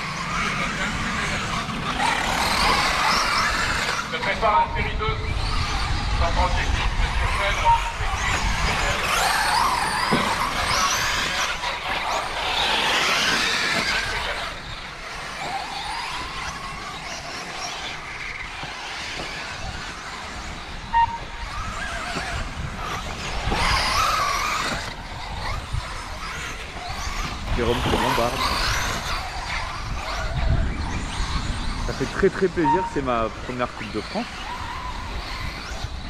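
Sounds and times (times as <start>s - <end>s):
electric rc car motors whining: 0.0s - 36.0s
tyre noise on track: 0.0s - 36.0s
short beep: 20.9s - 21.3s.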